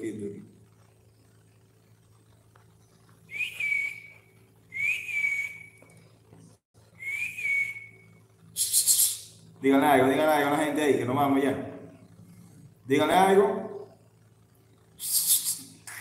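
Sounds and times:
person whistling short notes: 3.3 - 4.1.

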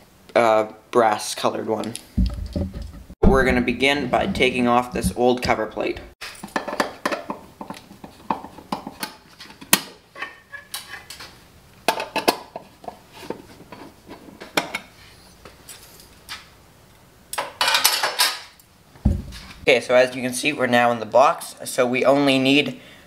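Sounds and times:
metal plate scraping: 2.2 - 6.2.

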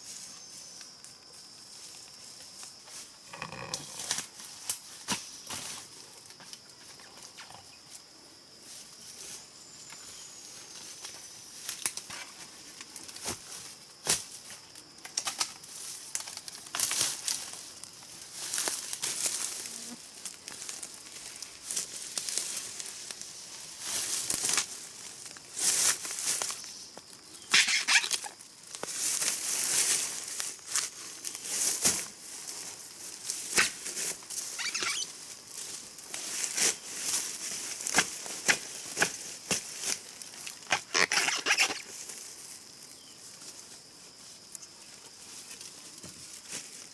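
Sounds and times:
leaves rustling and tearing: 15.0 - 46.9.

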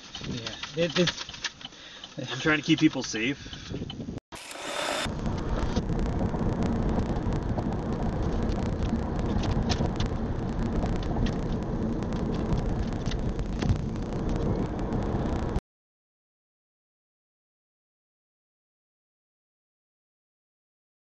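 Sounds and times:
car road noise rumble: 4.0 - 15.6.

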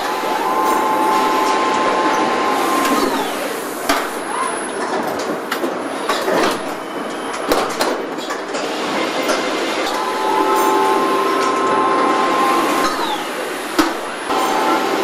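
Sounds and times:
machine whine gliding down: 0.0 - 3.5, 9.8 - 13.6, 14.2 - 15.0
steady mechanical hiss: 0.0 - 4.3, 8.7 - 15.0.

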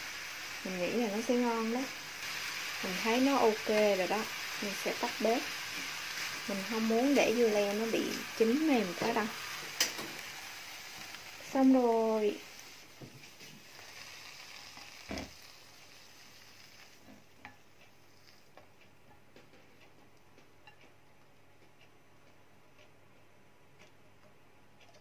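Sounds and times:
noodles sizzling in a pan: 0.0 - 18.6.

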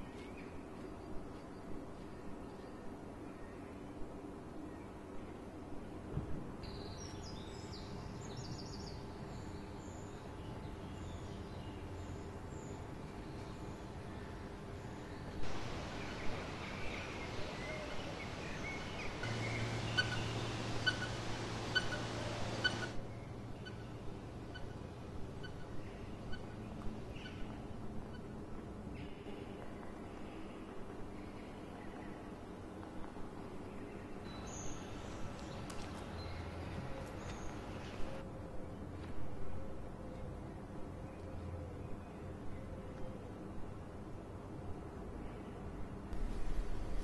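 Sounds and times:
low hum of town background: 0.0 - 47.0
small birds chirping: 14.8 - 24.7.

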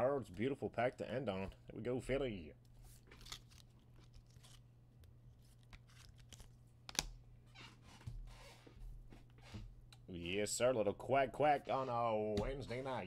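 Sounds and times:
cards rustling: 2.7 - 7.2.

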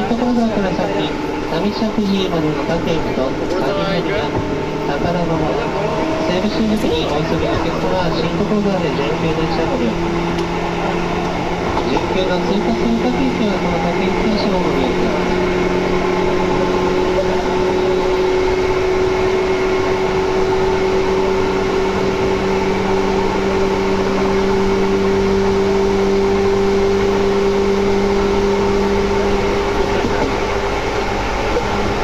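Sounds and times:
electric train motor whine: 0.0 - 32.0
low hum: 0.0 - 32.0
wheels rumbling on rails: 0.0 - 32.0.

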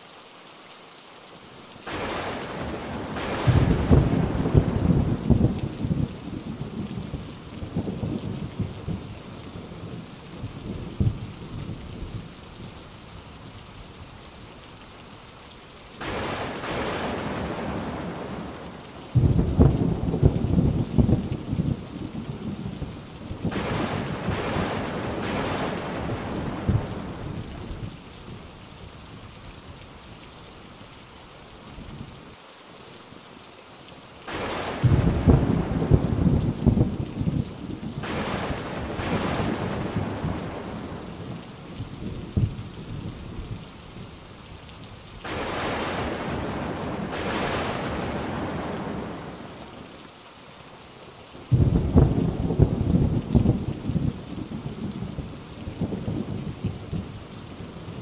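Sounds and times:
rain hiss: 0.0 - 58.0
rolling thunder: 1.9 - 9.1, 16.0 - 22.8, 23.4 - 28.0, 34.3 - 42.9, 45.2 - 49.5, 51.5 - 54.2.

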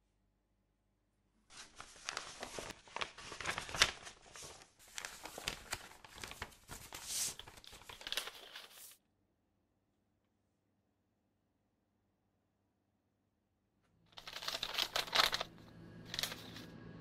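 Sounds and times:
paper and bag rustling: 1.5 - 9.0, 14.2 - 16.7.

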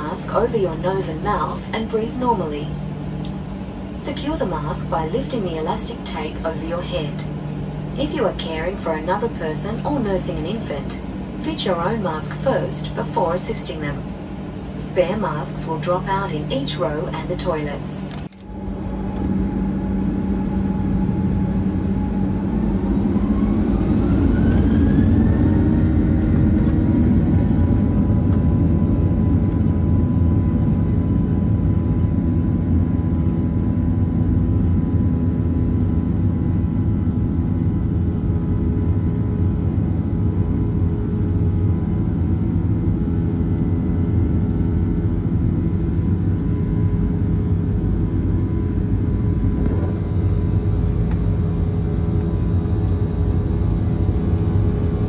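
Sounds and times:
jet engines spooling up: 0.0 - 30.9, 34.8 - 55.0
cabin rumble: 0.0 - 55.0.

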